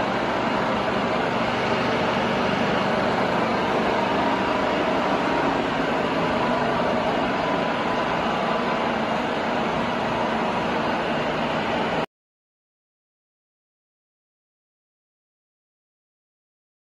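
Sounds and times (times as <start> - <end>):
milling machine humming: 0.0 - 12.0.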